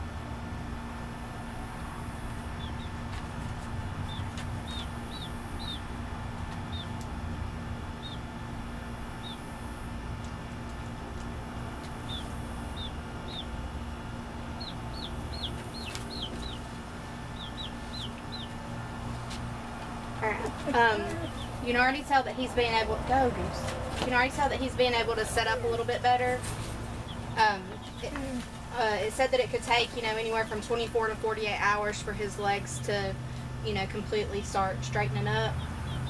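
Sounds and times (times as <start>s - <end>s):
baby chick peeping: 2.2s - 7.2s, 7.9s - 9.6s, 10.2s - 22.1s, 22.7s - 31.8s, 35.0s - 36.0s.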